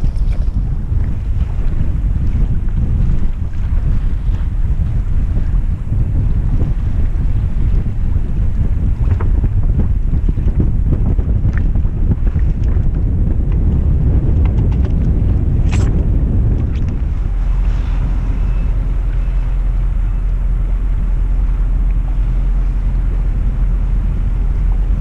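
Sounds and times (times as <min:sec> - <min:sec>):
boat engine drone: 0:00.0 - 0:25.0
wind rumbling on microphone: 0:00.0 - 0:25.0
clicks and knocks of mooring gear: 0:14.3 - 0:16.0.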